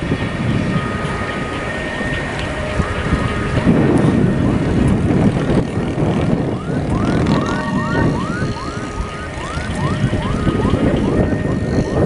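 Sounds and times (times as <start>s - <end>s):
siren yelping: 0.3s - 12.0s
motorcycle engines revving: 0.7s - 12.0s.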